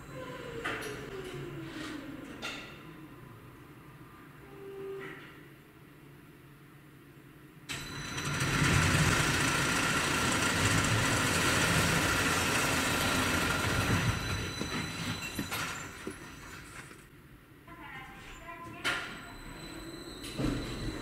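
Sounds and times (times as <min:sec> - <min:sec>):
high machine whine: 0:07.7 - 0:17.0
motor rumble: 0:08.1 - 0:15.0.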